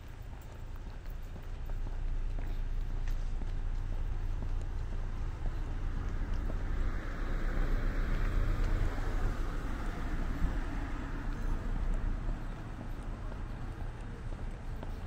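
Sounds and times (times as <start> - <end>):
low traffic rumble: 0.0 - 15.0
car passing: 3.7 - 15.0.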